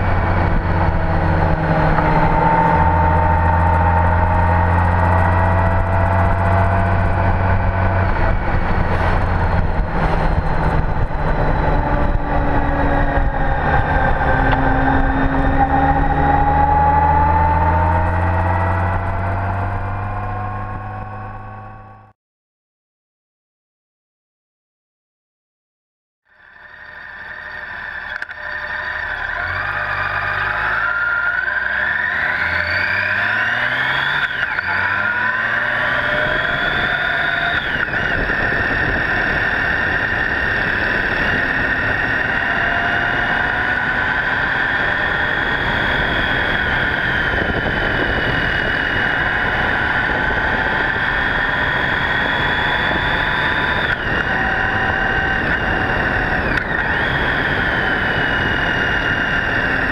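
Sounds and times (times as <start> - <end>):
heavy wind noise: 0.0 - 21.8, 34.7 - 59.9
motorcycle engine accelerating: 0.0 - 22.1, 26.3 - 59.9.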